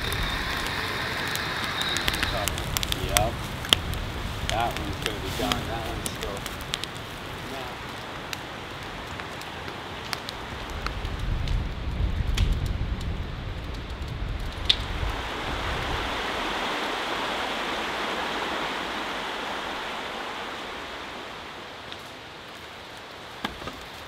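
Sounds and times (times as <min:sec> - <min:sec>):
raindrop ticks: 0:00.0 - 0:15.2
rain falling: 0:00.0 - 0:24.0.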